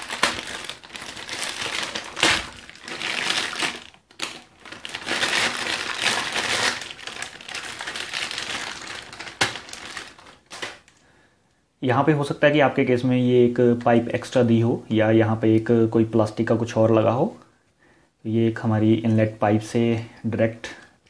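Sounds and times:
plastic bag crinkling: 0.0 - 11.0.

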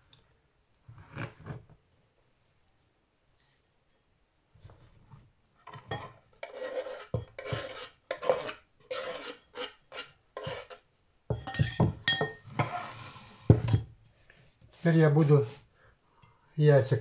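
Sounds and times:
scraping on wooden cutting board: 5.8 - 10.8, 12.5 - 13.9.

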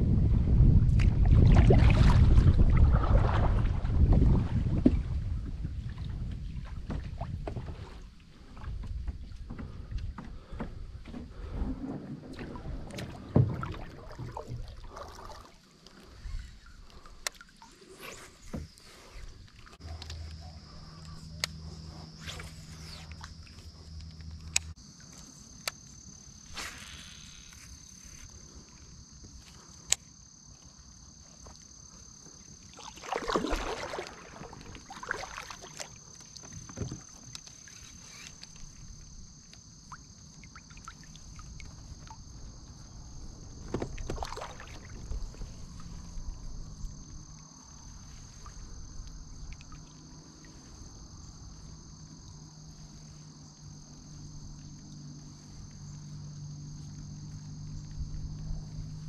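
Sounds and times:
insects chorus: 4.8 - 59.0
kayak handling noises: 6.2 - 32.4, 33.4 - 40.4, 41.4 - 49.2.

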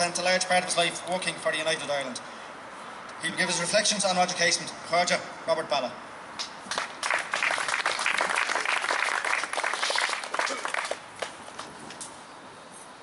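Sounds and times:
audience applauding: 6.7 - 11.4.

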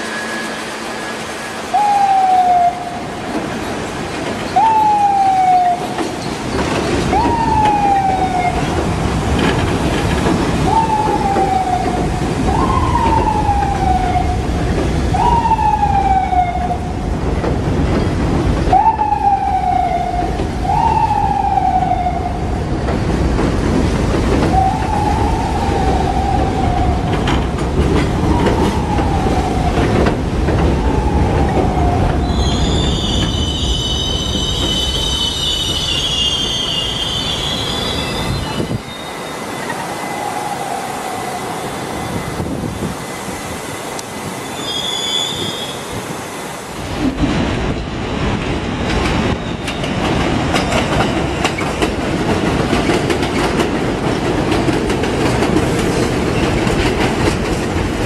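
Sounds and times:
high wheel squeal: 0.0 - 2.1, 32.2 - 40.3, 44.3 - 46.0
subway train rumbling: 0.0 - 58.0
train wheels clattering: 5.7 - 13.9, 22.7 - 38.8, 46.9 - 58.0.

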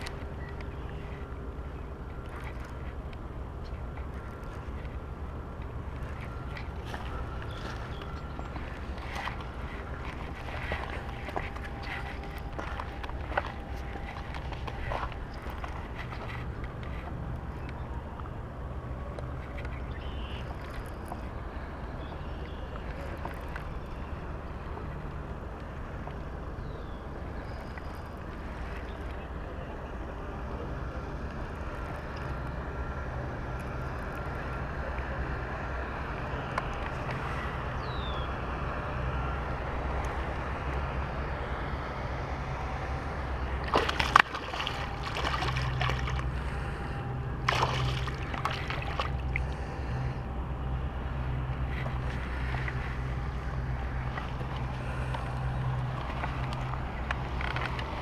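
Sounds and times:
water lapping on rocky shore: 2.1 - 17.4, 42.9 - 50.4.

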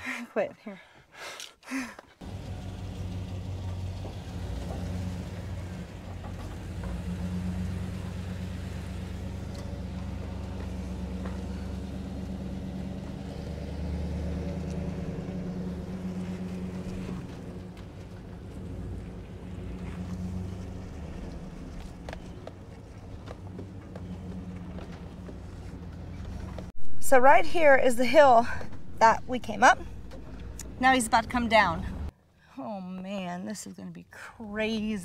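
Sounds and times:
van engine running under load: 2.2 - 32.1.

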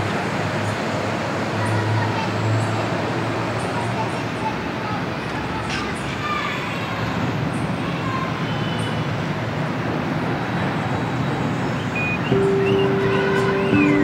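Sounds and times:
held music notes: 12.3 - 14.0.

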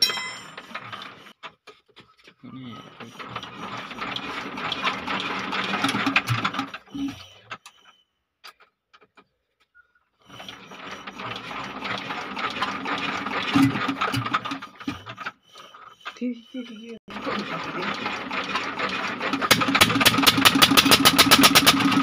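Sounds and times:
diesel engine cranking by hand: 0.0 - 9.2, 10.2 - 22.0.

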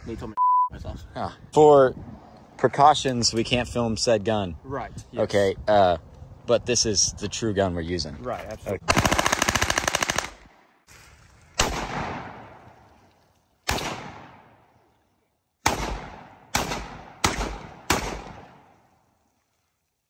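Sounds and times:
automatic gunfire: 8.9 - 10.5, 11.6 - 12.6, 13.7 - 14.5, 15.7 - 18.7
rifle shots with echo: 8.9 - 10.6, 11.6 - 12.8, 13.7 - 14.7, 15.6 - 18.8.

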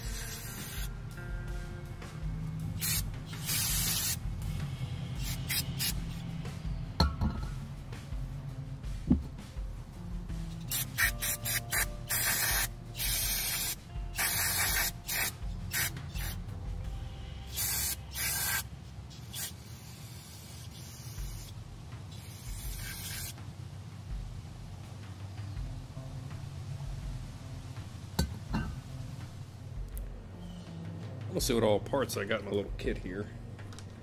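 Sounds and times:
aerosol spray hissing: 0.0 - 0.9, 2.8 - 4.2, 5.1 - 6.3, 10.6 - 16.4, 17.5 - 23.4.

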